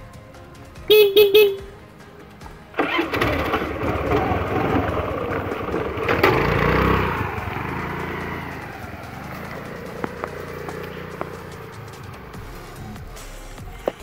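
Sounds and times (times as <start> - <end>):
scooter engine starting: 0.9 - 1.8, 2.6 - 14.0
scooter revving and riding off: 2.7 - 13.2.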